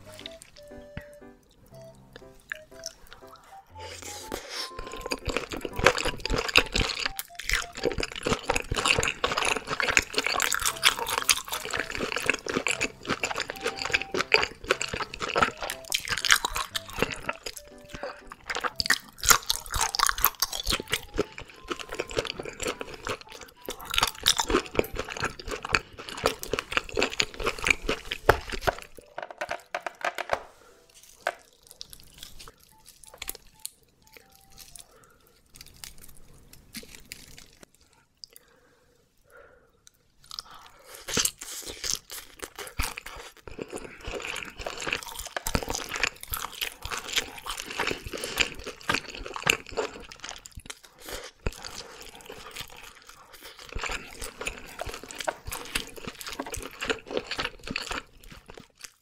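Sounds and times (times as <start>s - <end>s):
close chewing with wet clicks: 4.8s - 29.0s, 40.3s - 59.0s.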